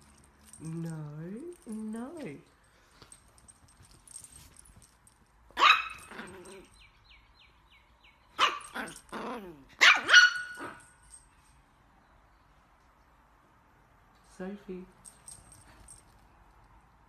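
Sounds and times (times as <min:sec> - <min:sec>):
small dog barking high-pitched: 0:05.6 - 0:06.6, 0:08.3 - 0:10.8.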